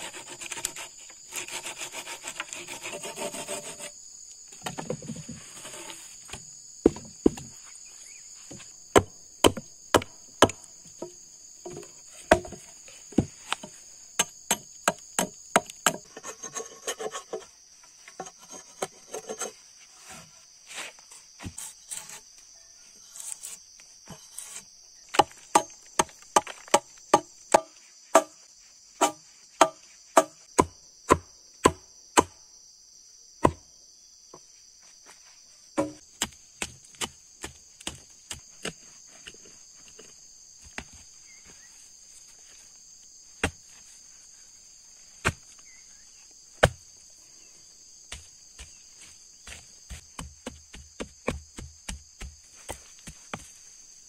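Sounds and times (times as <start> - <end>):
high-pitched insect buzz: 7.6 - 8.4
hatchet chopping into log: 9.0 - 10.6, 25.2 - 28.3, 35.8 - 38.0, 46.6 - 46.8
mattock striking soil: 35.8 - 41.0, 43.4 - 43.9, 45.2 - 45.8, 46.6 - 46.8, 48.1 - 53.7.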